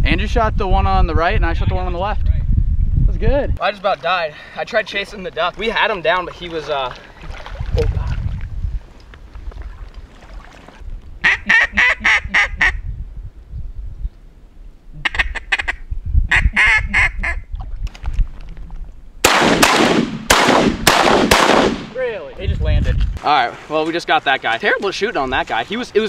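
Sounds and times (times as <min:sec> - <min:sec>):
ducks quacking loudly: 0:11.2 - 0:12.8, 0:15.0 - 0:17.4
shotgun blasts: 0:19.2 - 0:22.0.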